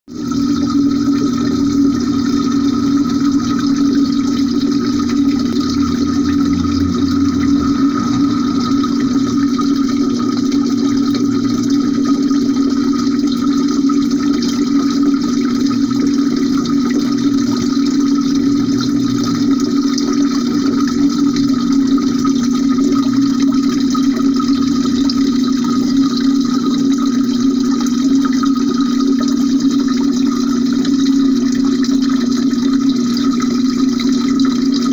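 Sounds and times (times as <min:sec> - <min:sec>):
low hum: 0:00.1 - 0:26.5
muffled underwater rush of water: 0:00.1 - 0:34.9.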